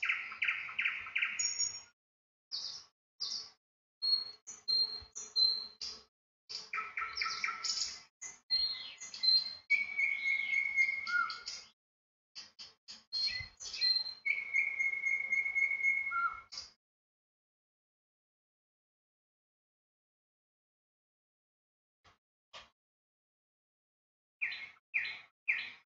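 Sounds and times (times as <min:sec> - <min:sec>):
small birds chirping: 0:00.0 - 0:01.9, 0:02.5 - 0:11.8, 0:12.4 - 0:16.8, 0:24.4 - 0:25.8.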